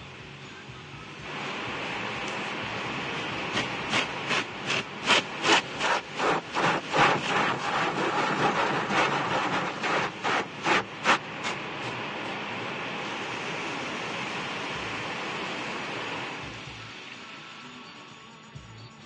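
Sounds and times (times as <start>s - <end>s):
car wash spray and machinery: 0.0s - 19.0s
rhythmic brush strokes on vehicle: 1.3s - 13.3s.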